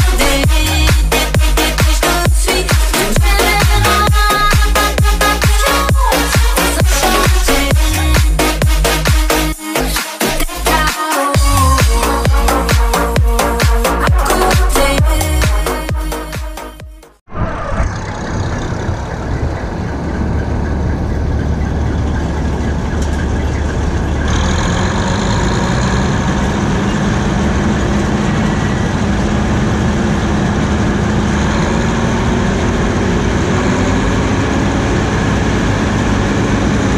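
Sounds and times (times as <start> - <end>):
combine harvester engine drone: 0.0 - 9.1, 17.3 - 36.9.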